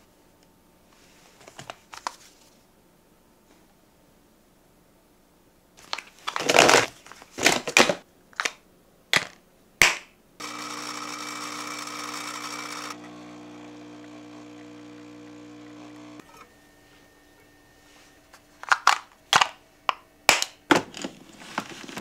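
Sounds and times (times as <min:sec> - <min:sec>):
steady machine hum: 0:10.4 - 0:20.3.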